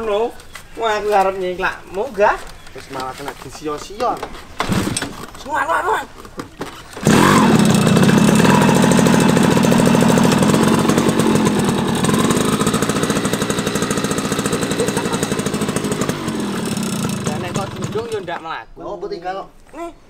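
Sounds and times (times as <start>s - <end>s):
motorcycle engine putter: 6.2s - 18.4s.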